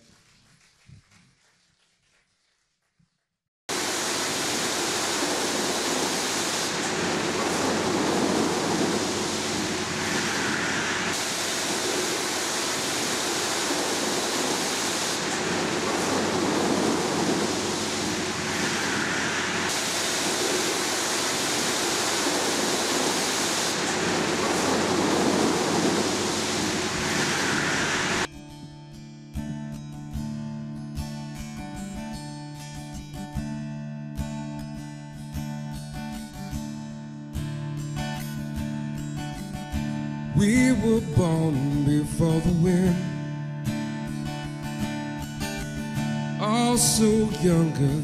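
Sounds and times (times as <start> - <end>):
water spraying hard: 3.7 - 28.3.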